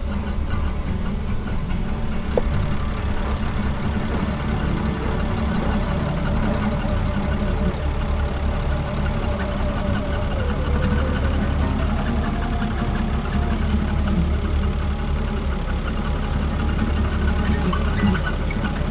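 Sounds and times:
vehicle engine idling: 0.0 - 18.9
short squeak: 17.3 - 18.9.

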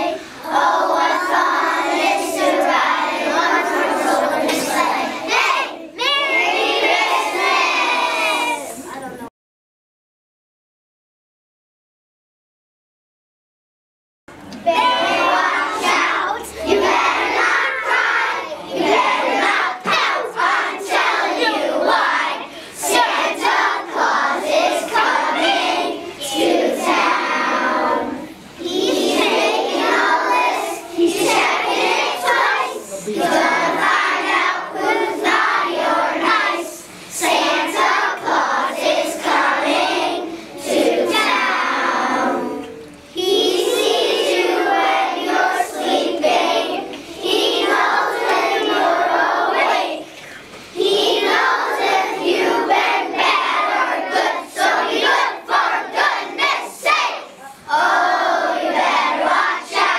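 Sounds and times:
children singing together: 0.0 - 9.0, 14.4 - 59.9.

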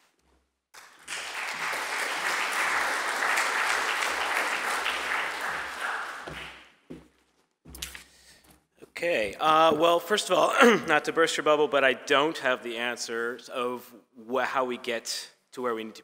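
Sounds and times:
audience applauding: 0.8 - 6.8.

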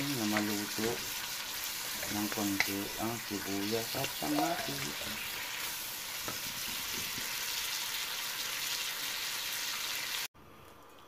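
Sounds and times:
vegetables sizzling in hot oil: 0.0 - 10.3
wooden spatula stirring: 0.2 - 7.4.

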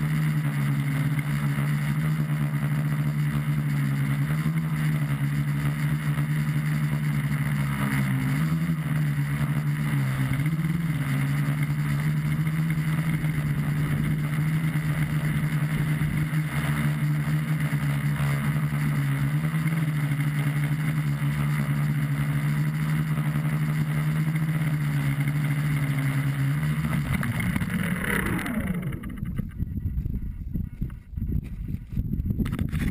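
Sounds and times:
drone motors humming: 0.0 - 32.9.

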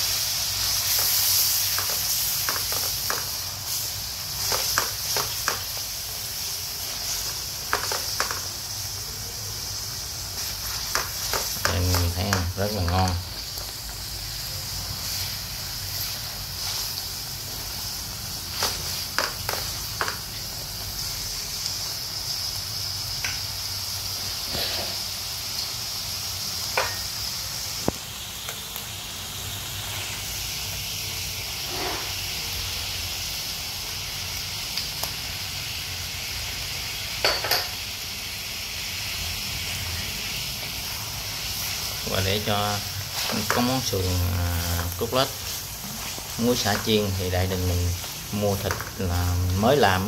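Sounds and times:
meat sizzling in hot oil: 0.0 - 50.0
utensils clicking against pan: 0.8 - 3.8, 4.4 - 5.9, 7.0 - 8.5, 10.4 - 14.0, 18.5 - 20.5.

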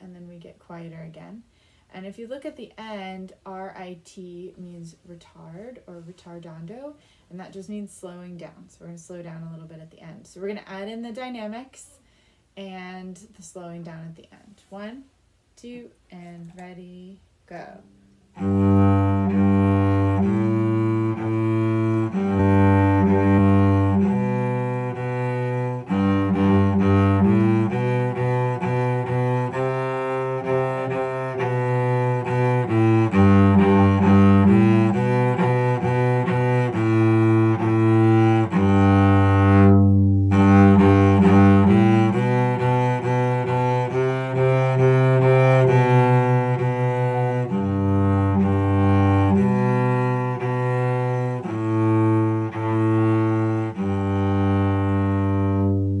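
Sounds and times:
bowed cello melody: 17.7 - 56.0.

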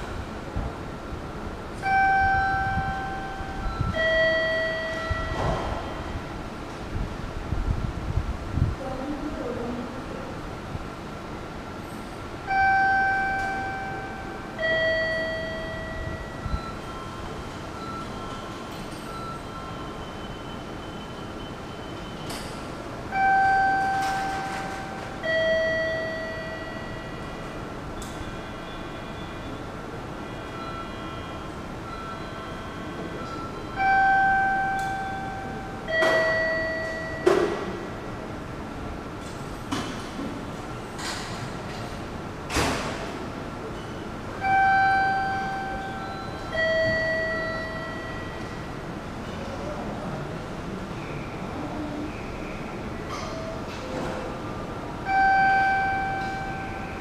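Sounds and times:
steady background noise: 0.0 - 57.0
public-address chime: 1.8 - 6.4, 12.4 - 38.1, 43.6 - 49.8, 55.0 - 57.0.

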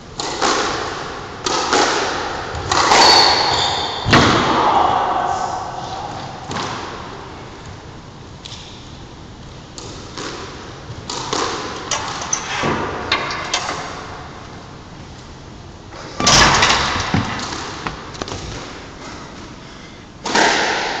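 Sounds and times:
knocks echoing in squash court: 0.0 - 14.8, 15.9 - 19.6, 20.2 - 21.0
loud ringing slam: 2.9 - 7.0.

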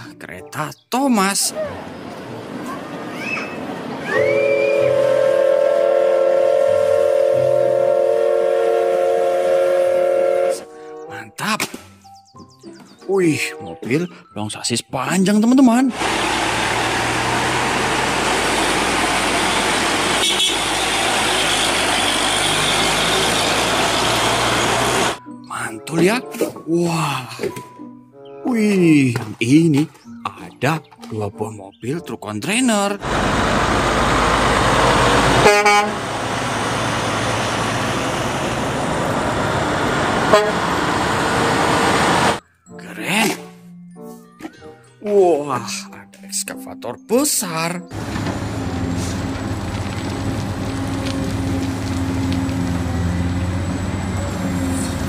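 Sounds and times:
road and wind noise: 1.5 - 5.3, 15.9 - 25.2, 33.0 - 42.4, 47.9 - 55.0
truck horn blast: 4.1 - 10.7, 18.4 - 25.2, 34.6 - 38.3, 40.2 - 41.5
diesel truck engine running: 15.9 - 25.2, 33.0 - 42.4, 47.9 - 55.0.

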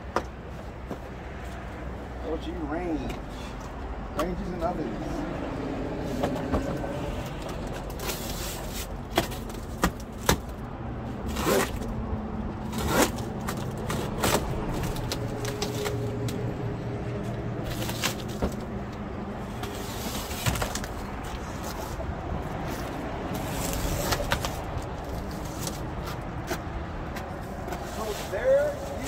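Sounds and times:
cardboard boxes knocking and scraping: 7.7 - 10.6, 19.6 - 21.0.

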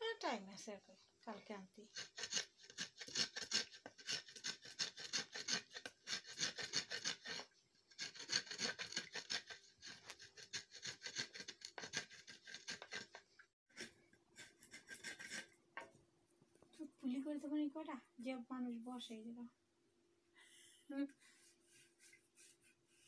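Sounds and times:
knife scraping coconut shell: 1.8 - 15.6.

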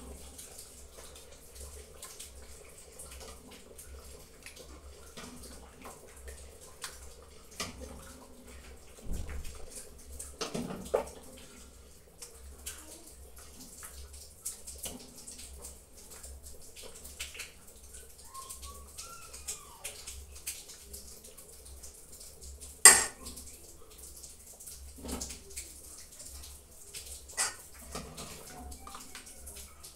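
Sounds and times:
liquid slopping and dripping: 0.0 - 29.9
spoon scraping and tapping pot: 22.9 - 23.2, 27.4 - 27.6.

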